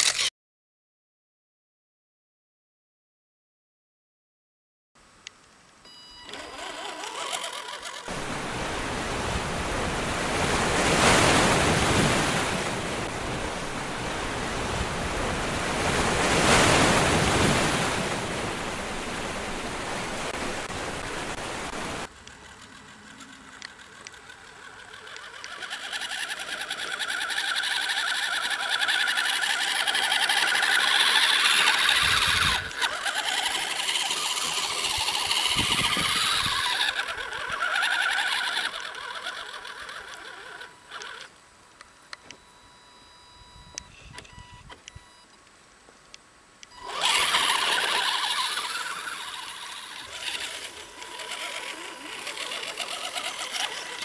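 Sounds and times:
toy truck electric motor whine: 0:00.0 - 0:00.3, 0:05.9 - 0:09.1, 0:22.0 - 0:41.4, 0:46.7 - 0:54.0.

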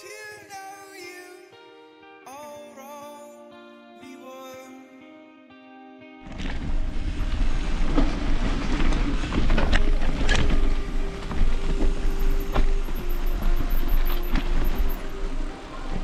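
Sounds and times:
tyre and trail noise: 0:06.3 - 0:16.0
wind rumble on microphone: 0:06.3 - 0:16.0
bike rattling and knocking: 0:06.4 - 0:15.1.

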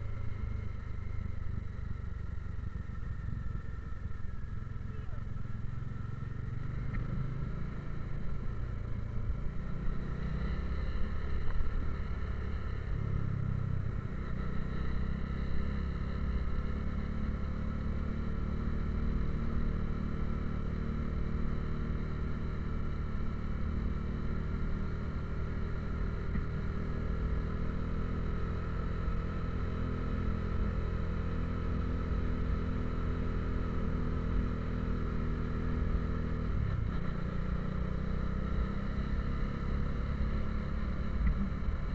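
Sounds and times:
motorcycle engine running: 0:00.0 - 0:41.9.

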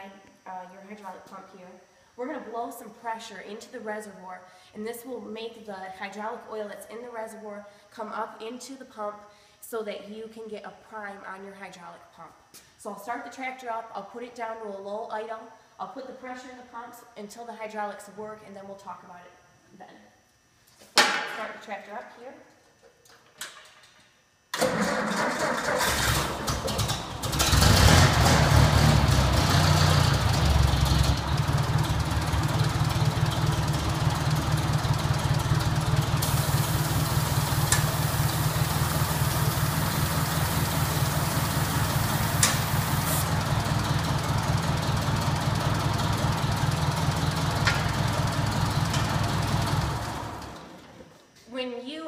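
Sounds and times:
tractor engine starting and idling: 0:24.5 - 0:51.1
compressed air hissing: 0:36.0 - 0:43.4.

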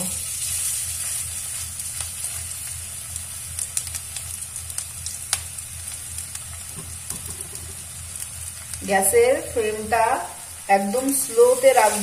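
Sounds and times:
oil crackles and pops: 0:00.0 - 0:08.9
food sizzling in hot oil: 0:00.0 - 0:12.0.

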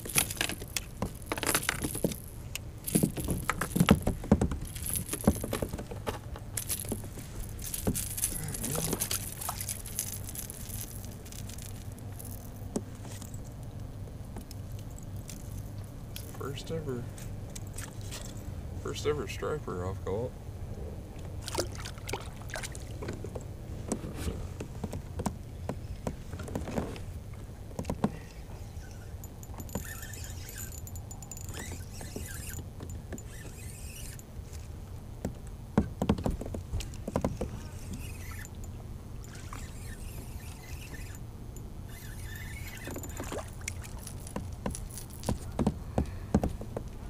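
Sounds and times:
fishing reel winding: 0:29.5 - 0:32.6, 0:39.3 - 0:41.2, 0:41.9 - 0:43.2.

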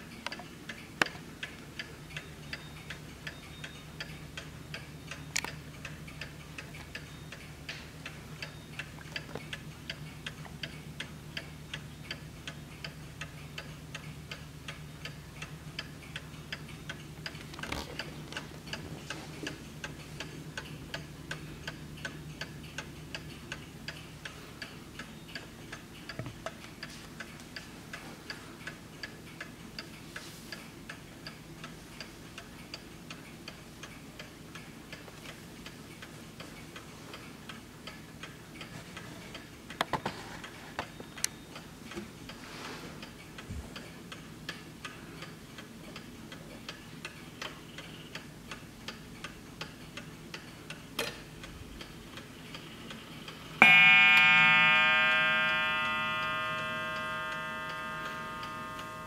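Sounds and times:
clock ticking: 0:51.8 - 0:59.0
louder clock clicks: 0:53.6 - 0:59.0.

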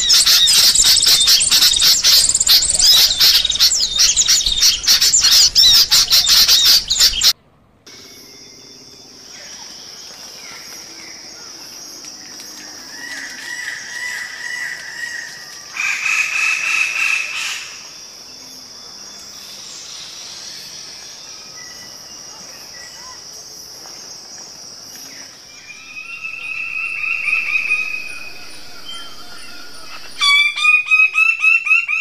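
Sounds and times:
bird calls: 0:00.0 - 0:07.4, 0:25.0 - 0:32.0
chorus of birds chirping: 0:00.0 - 0:32.0
high insect hum: 0:07.9 - 0:32.0.

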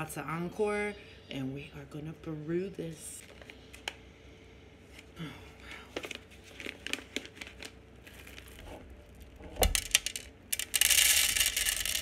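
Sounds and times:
coffee bag crinkling: 0:05.8 - 0:10.0
coffee beans tipping into cup: 0:09.6 - 0:12.0.

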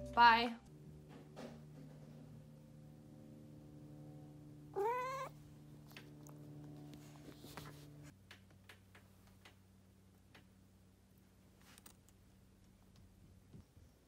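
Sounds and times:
steady low hum: 0:00.0 - 0:08.2
cat meowing: 0:04.7 - 0:05.4.

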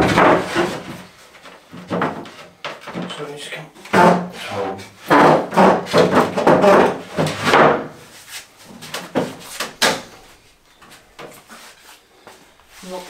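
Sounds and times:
sharp wooden knocks: 0:00.0 - 0:03.1, 0:03.8 - 0:04.4, 0:05.0 - 0:08.0, 0:08.8 - 0:10.2
wood knocking and scraping: 0:00.0 - 0:10.2, 0:10.8 - 0:12.8.

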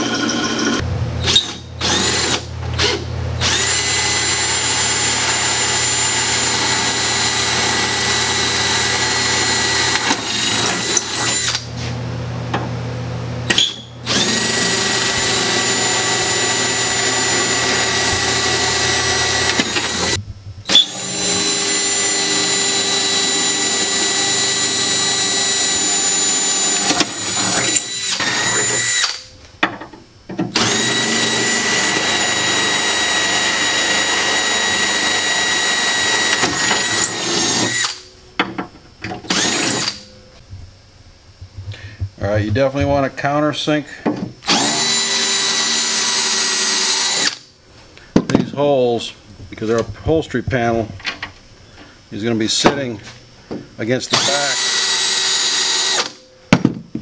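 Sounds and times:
power drill whining: 0:00.0 - 0:11.8, 0:13.5 - 0:29.4, 0:30.5 - 0:38.1, 0:39.2 - 0:40.1, 0:44.4 - 0:47.5, 0:54.0 - 0:56.3.

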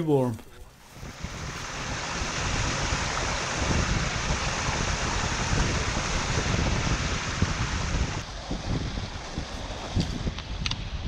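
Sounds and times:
wind buffeting the microphone: 0:00.6 - 0:11.0
small waterfall rushing: 0:01.0 - 0:08.2.

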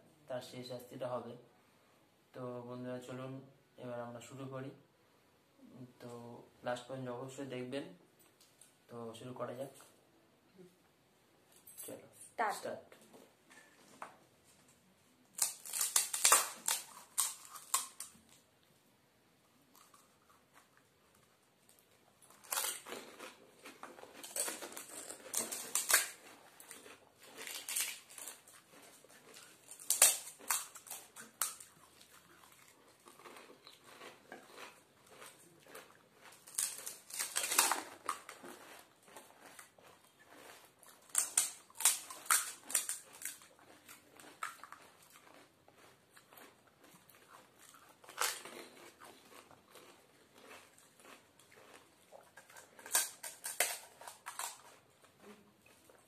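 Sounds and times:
crisp shells cracking and crunching: 0:15.3 - 0:18.4, 0:19.7 - 0:54.9.

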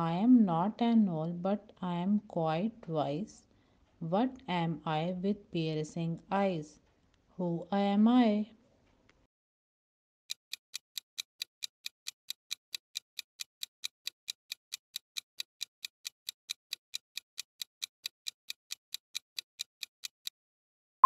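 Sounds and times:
clock ticking: 0:10.3 - 0:20.4.

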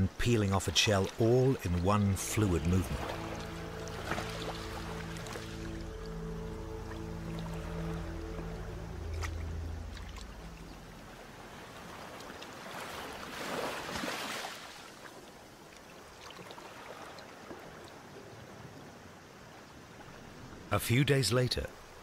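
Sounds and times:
water splashing in a rock pool: 0:00.0 - 0:05.7, 0:11.0 - 0:18.7
low music chord: 0:01.7 - 0:11.6.

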